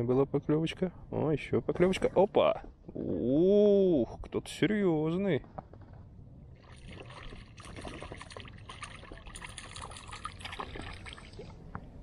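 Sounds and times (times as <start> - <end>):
fish thrashing at water surface: 6.6 - 11.6.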